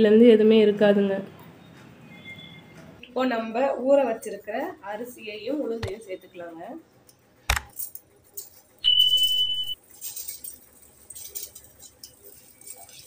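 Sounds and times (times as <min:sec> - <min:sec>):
high-pitched electronic beep: 0:08.8 - 0:09.8.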